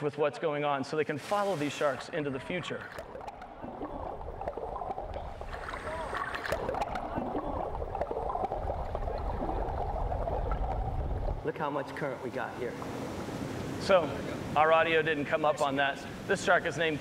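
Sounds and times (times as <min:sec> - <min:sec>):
wind and water rumble: 0:01.3 - 0:11.5, 0:12.2 - 0:14.9.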